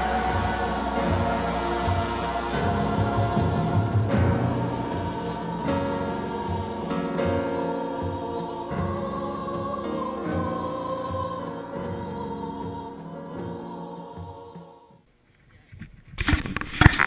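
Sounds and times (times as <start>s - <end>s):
orchestra playing: 0.0s - 7.6s
steady low beat: 0.0s - 13.0s
choir singing: 0.0s - 15.0s.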